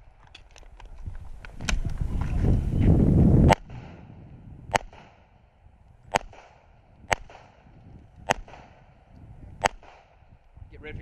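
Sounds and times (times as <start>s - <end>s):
pistol shots: 4.7s - 5.3s, 6.1s - 10.3s.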